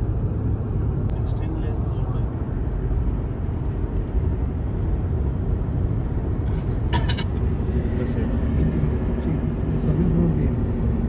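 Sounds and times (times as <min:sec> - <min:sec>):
car road and engine rumble: 0:00.0 - 0:11.0.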